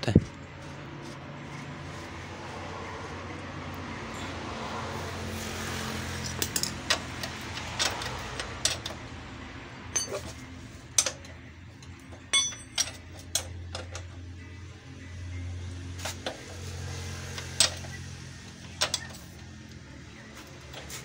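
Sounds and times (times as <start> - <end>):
spanner clinking on nut: 6.2 - 9.0, 9.9 - 14.2.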